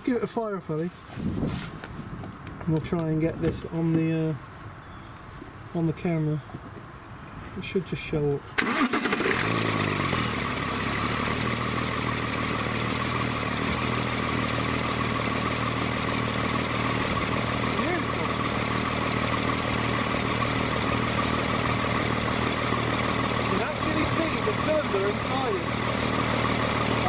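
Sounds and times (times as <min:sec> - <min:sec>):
diesel engine idling: 0:08.6 - 0:27.0.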